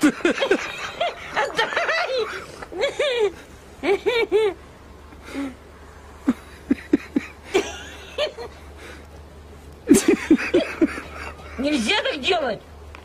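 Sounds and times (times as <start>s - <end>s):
person laughing: 0.0s - 4.6s, 6.2s - 8.6s, 9.9s - 11.7s.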